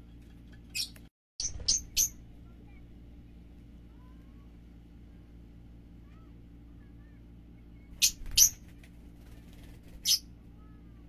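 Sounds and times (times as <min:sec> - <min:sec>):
soft bird chirps: 0:00.0 - 0:02.8
faint low hum: 0:00.0 - 0:11.0
lovebirds shrill calls: 0:00.7 - 0:02.2, 0:10.0 - 0:10.2.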